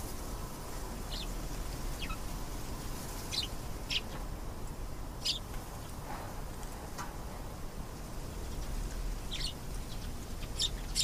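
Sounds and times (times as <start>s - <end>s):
canary chirping: 2.0s - 2.2s, 3.3s - 4.2s, 5.2s - 5.4s, 9.3s - 11.0s.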